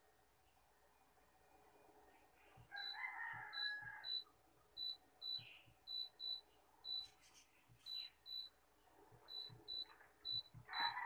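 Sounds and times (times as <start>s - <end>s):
rooster crowing: 2.7s - 4.3s, 10.7s - 11.0s.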